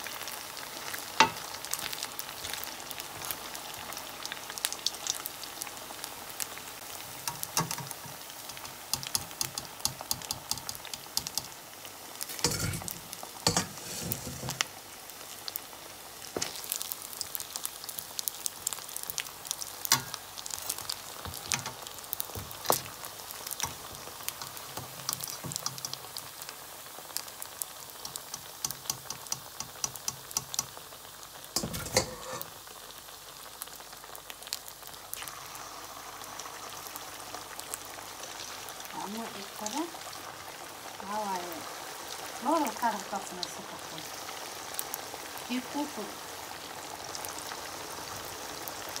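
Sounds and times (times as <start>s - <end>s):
potatoes deep-frying in oil: 0.0s - 49.0s.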